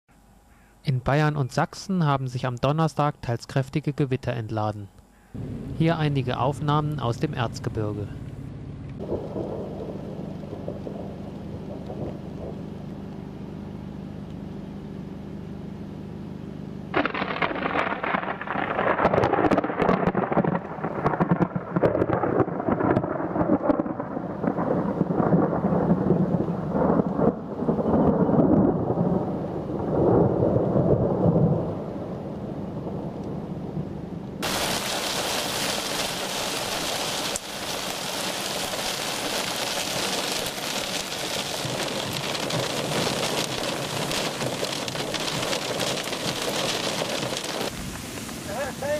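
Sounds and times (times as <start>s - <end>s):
steady rain hiss: 0.1s - 15.0s, 16.1s - 48.9s
crackling thunder rumble: 9.0s - 13.5s, 16.9s - 48.9s.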